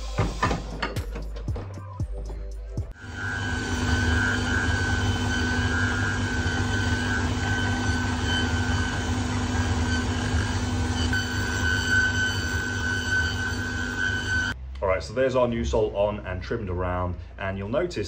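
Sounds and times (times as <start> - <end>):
finishing machine humming and whining: 2.9 - 14.6.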